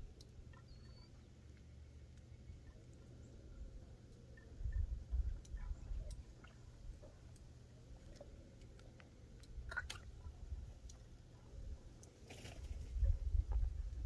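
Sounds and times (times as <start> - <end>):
wind rumbling on microphone: 4.6 - 7.1, 11.5 - 14.0.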